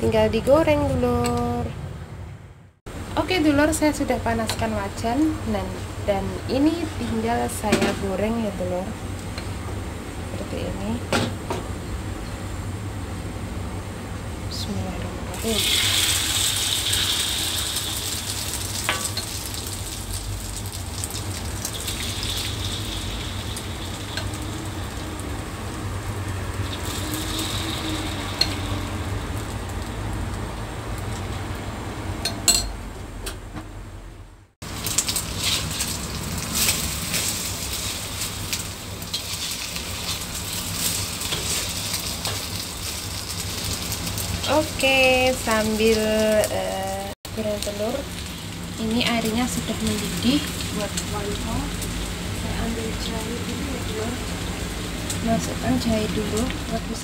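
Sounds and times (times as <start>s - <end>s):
omelette sizzling in hot oil: 15.3s - 31.3s, 34.6s - 46.5s.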